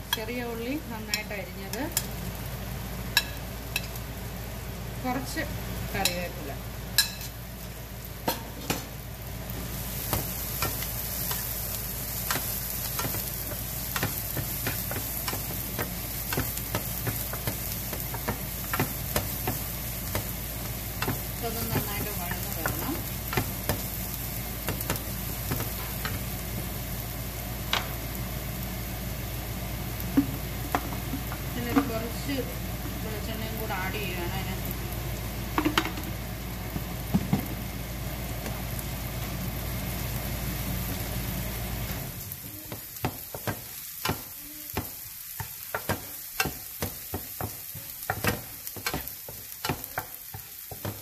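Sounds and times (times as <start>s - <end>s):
food sizzling in oil: 0.0s - 51.0s
spatula tapping against pan: 42.7s - 51.0s.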